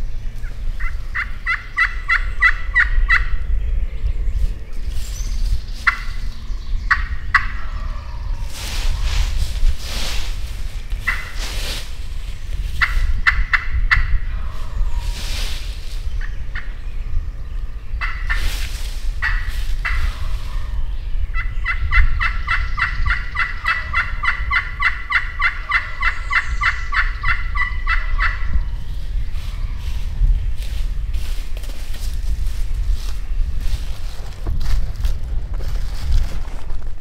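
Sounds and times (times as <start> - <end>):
turkey gobbling: 0.4 - 3.4, 5.8 - 6.2, 6.9 - 8.3, 11.0 - 11.5, 12.8 - 14.8, 18.0 - 18.6, 19.2 - 28.6
turkey call yelps: 0.8 - 3.3, 11.1 - 11.4, 21.4 - 28.5.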